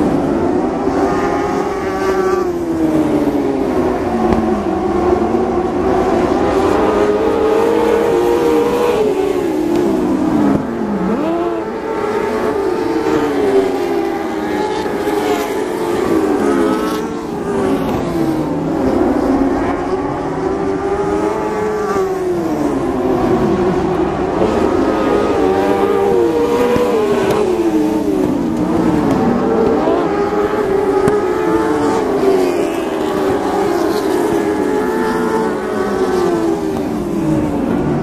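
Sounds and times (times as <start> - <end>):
race car engines passing: 0.0 - 38.0.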